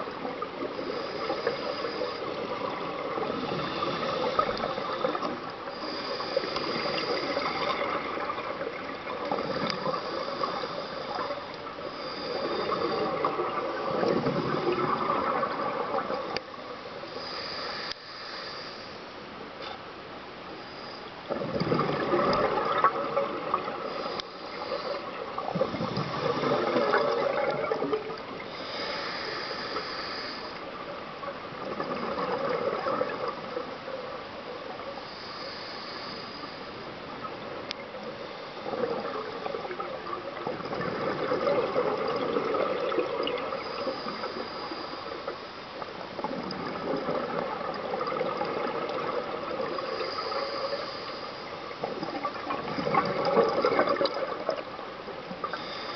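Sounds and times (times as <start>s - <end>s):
regulator hiss on inhale: 0.0s - 19.3s, 20.4s - 21.6s, 22.3s - 47.2s, 48.1s - 55.9s
exhaust bubbles gushing: 25.4s - 28.1s, 46.2s - 49.8s, 51.8s - 54.7s.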